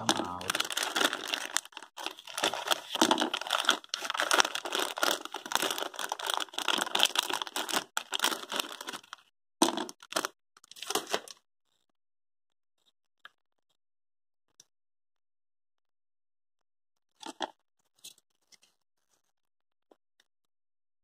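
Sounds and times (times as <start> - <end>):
plastic packaging crinkling: 0.0 - 11.3.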